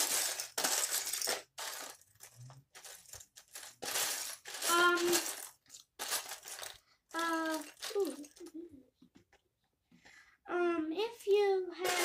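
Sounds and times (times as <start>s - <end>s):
plastic bricks clattering: 0.0s - 8.5s.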